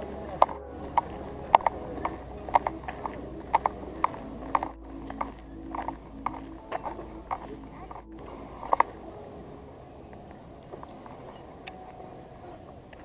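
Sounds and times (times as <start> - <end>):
footsteps on pavement: 0.0 - 9.0.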